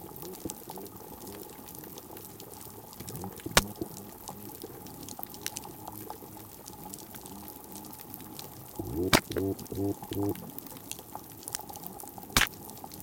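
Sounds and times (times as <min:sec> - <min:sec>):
snapping shrimp clicks: 0:03.0 - 0:03.8, 0:08.8 - 0:10.4, 0:12.4 - 0:12.7
pistol shrimp loud snap: 0:09.1 - 0:09.4.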